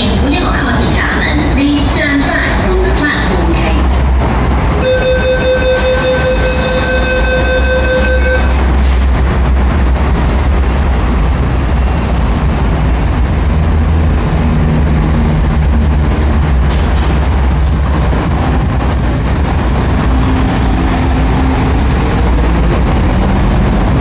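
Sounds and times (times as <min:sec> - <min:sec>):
train low hum: 0:00.0 - 0:24.0
train low rumble: 0:00.0 - 0:24.0
electronic beep: 0:04.8 - 0:08.5.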